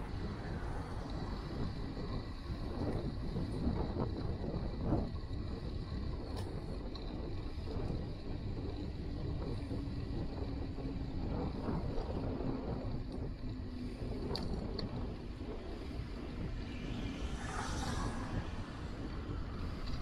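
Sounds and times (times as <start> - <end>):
low rolling rumble: 0.0 - 20.0
wind over microphone: 0.0 - 20.0.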